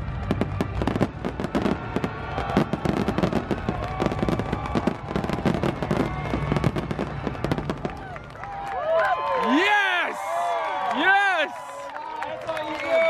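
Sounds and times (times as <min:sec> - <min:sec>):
fireworks bursting and crackling: 0:00.0 - 0:08.7.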